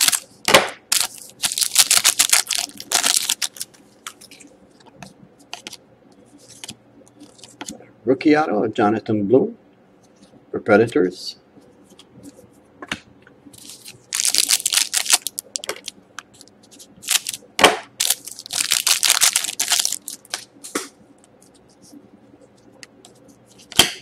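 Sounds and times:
foil pack crinkling: 0:00.0 - 0:04.4, 0:13.6 - 0:20.5
foil cracking: 0:00.9 - 0:03.7, 0:13.6 - 0:15.9, 0:18.0 - 0:20.4.

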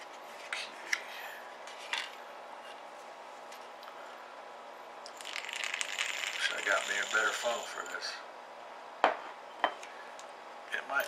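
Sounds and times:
pellets rattling and pouring: 0:05.2 - 0:07.8
shot pellets clinking in bowl: 0:05.2 - 0:07.9.

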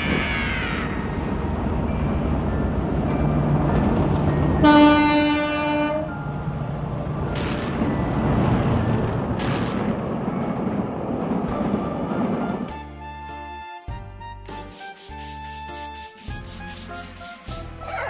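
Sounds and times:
train rumbling on rails: 0:00.0 - 0:12.8
train whistle blast: 0:04.6 - 0:06.1.

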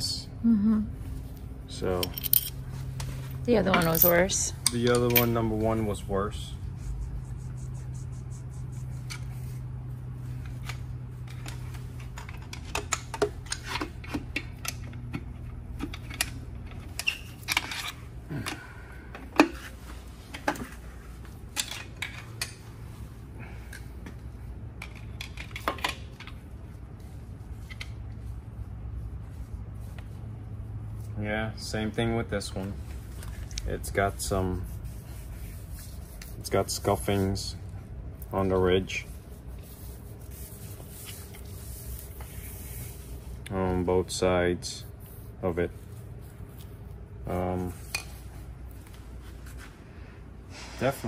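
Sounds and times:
steady low hum: 0:00.0 - 0:51.0
metal tools clinking: 0:01.8 - 0:02.8, 0:03.6 - 0:05.6.

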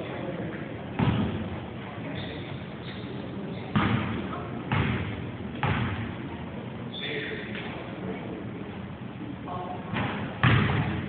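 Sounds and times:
basketball bouncing on hardwood: 0:04.7 - 0:06.0, 0:10.0 - 0:11.0.

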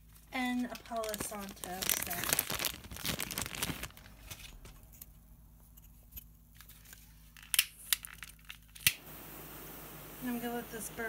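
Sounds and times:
dry material crinkling: 0:00.0 - 0:04.8.

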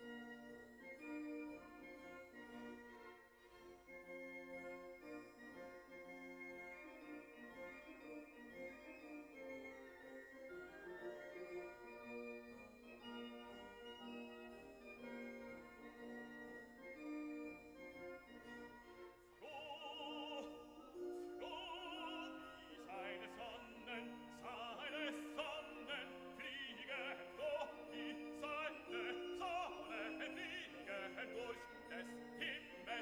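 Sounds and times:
high operatic melody with vibrato: 0:00.0 - 0:33.0
keyboard accompaniment: 0:00.0 - 0:33.0.

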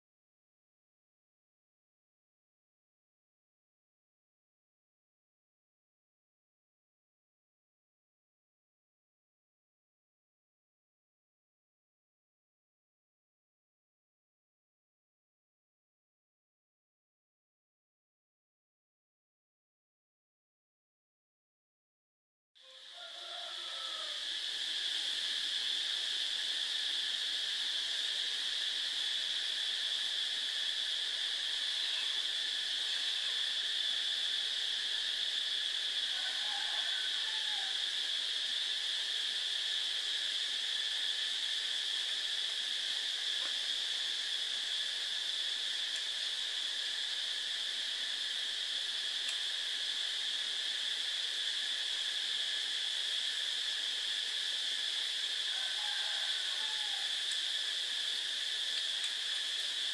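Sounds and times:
high-pitched insect drone: 0:22.6 - 0:59.9.

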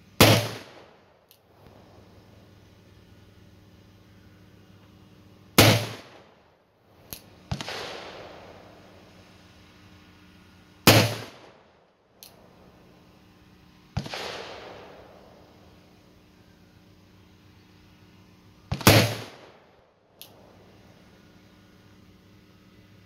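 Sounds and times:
distant echoing gunshots: 0:00.2 - 0:01.0, 0:05.6 - 0:06.4, 0:07.5 - 0:09.0, 0:10.8 - 0:11.8, 0:14.0 - 0:15.6, 0:18.7 - 0:19.7
revolver gunshots: 0:00.2 - 0:01.0, 0:05.6 - 0:06.4, 0:07.5 - 0:09.0, 0:10.8 - 0:11.8, 0:14.0 - 0:15.6, 0:18.7 - 0:19.7.

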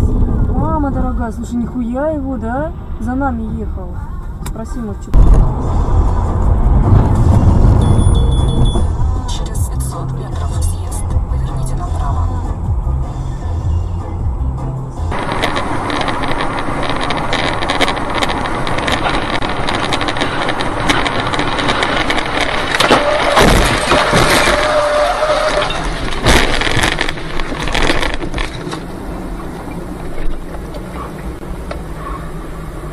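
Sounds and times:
car road and engine noise: 0:00.0 - 0:32.9
steady tone: 0:05.1 - 0:10.0
debris crashing on car: 0:15.2 - 0:29.0.

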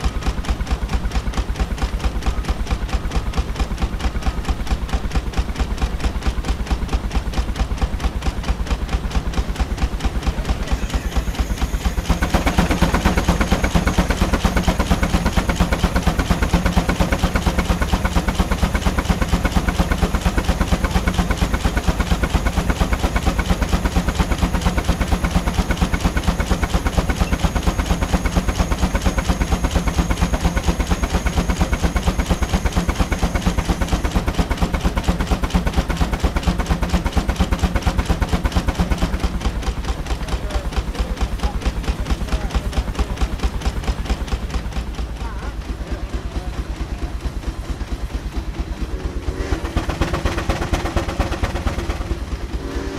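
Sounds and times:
steam engine exhaust beats: 0:00.0 - 0:52.9
steam hissing: 0:10.3 - 0:38.0.

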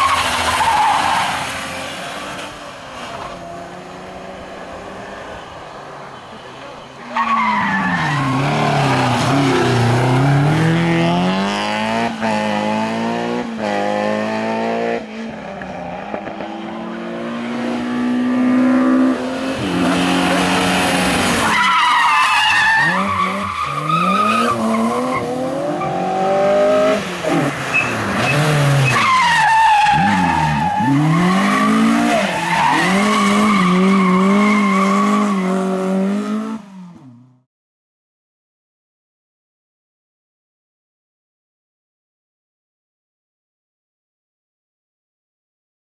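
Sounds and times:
rally car engines revving: 0:06.4 - 0:37.3
tyre squeal: 0:21.3 - 0:26.0, 0:27.7 - 0:35.5.

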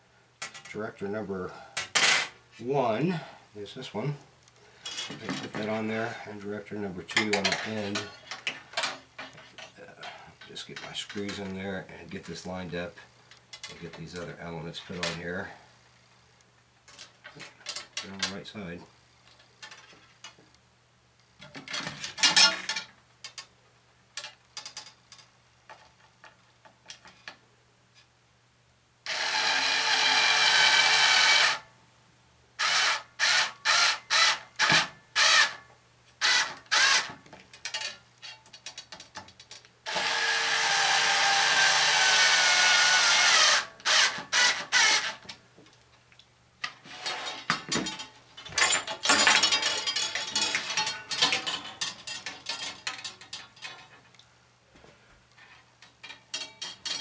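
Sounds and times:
cordless drill driving screws: 0:29.1 - 0:31.6, 0:32.6 - 0:35.6, 0:36.2 - 0:37.1, 0:39.9 - 0:45.2.

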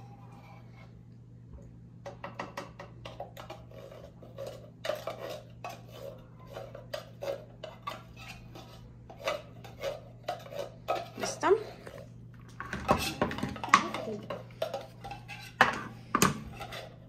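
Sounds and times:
spoon scraping a tin can: 0:03.0 - 0:17.0.

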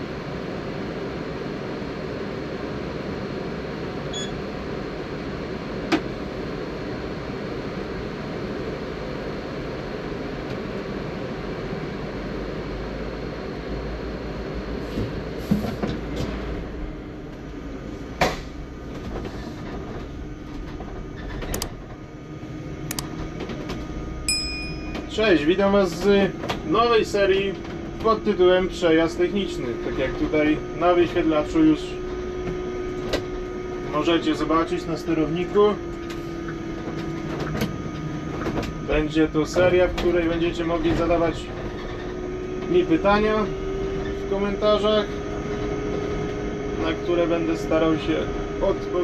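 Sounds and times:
bus interior hum and whir: 0:00.0 - 0:49.0
faint short beep: 0:04.1 - 0:04.4, 0:24.3 - 0:25.1.

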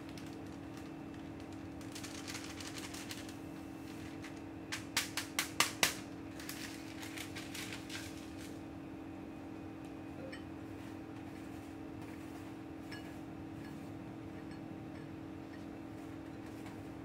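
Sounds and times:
paper rustling and crackling: 0:00.0 - 0:08.6
steady low hum: 0:00.0 - 0:17.0.

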